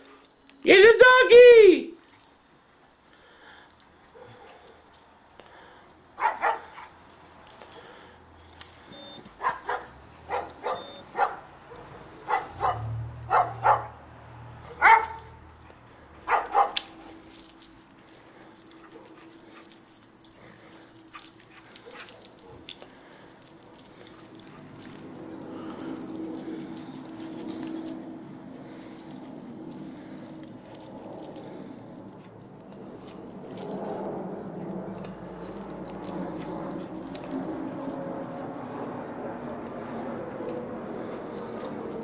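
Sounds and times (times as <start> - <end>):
dog barking: 4.2 - 4.8, 6.2 - 6.9, 9.4 - 14.0, 14.7 - 15.4, 16.2 - 16.8.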